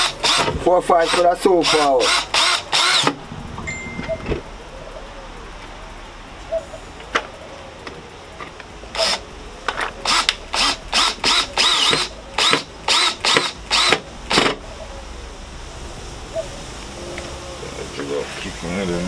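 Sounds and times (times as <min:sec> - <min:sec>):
cordless drill driving a screw: 0:00.0 - 0:03.1, 0:09.0 - 0:09.2, 0:10.0 - 0:14.4.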